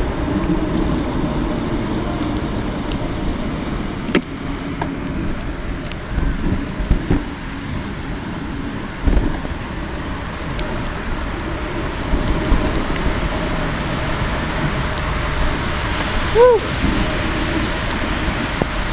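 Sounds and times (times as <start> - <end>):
bicycle tyres rolling on pavement: 0.0 - 18.9
wind over microphone: 0.0 - 18.9
small clicks: 0.8 - 1.1.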